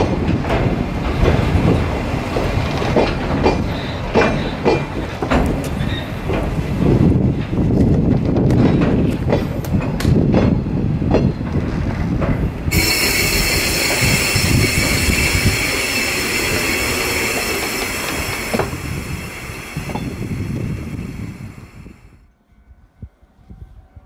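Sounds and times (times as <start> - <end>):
wheels clicking over rail joints: 0.0 - 21.3
freight train wagons rumbling: 0.0 - 22.2
high wheel squeal: 12.7 - 21.6.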